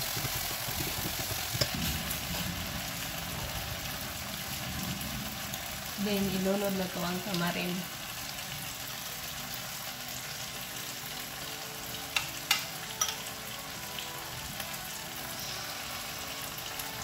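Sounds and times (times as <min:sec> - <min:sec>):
paste sizzling in hot oil: 0:00.0 - 0:17.0
spoon clinking against bowl: 0:12.2 - 0:13.3.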